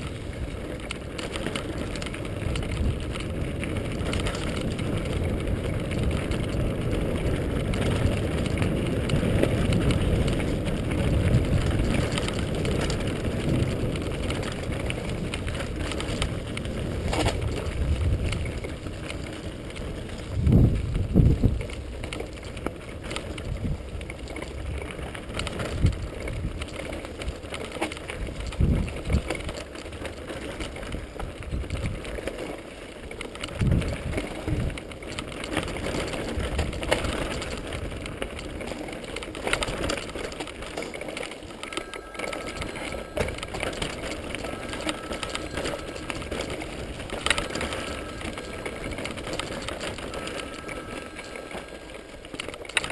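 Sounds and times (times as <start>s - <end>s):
bike rattling: 0.0s - 52.9s
tyres on gravel: 0.0s - 52.9s
wind rumbling on microphone: 0.0s - 52.9s.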